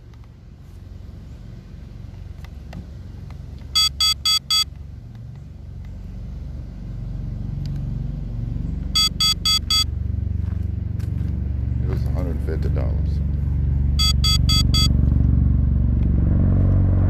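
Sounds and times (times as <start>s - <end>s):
high electronic alarm beeps: 3.8s - 4.7s, 9.0s - 9.9s, 14.0s - 14.9s.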